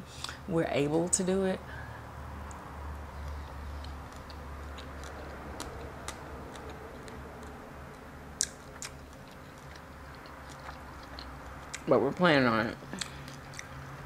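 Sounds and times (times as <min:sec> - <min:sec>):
low steady hum: 0:00.0 - 0:14.0
chewing clicks: 0:03.2 - 0:11.9, 0:13.0 - 0:14.0.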